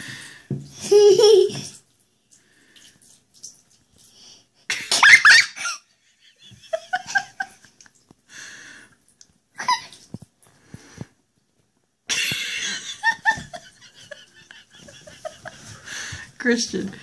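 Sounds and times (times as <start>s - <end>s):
person laughing and giggling: 4.7s - 7.9s, 9.6s - 10.0s, 12.1s - 16.2s.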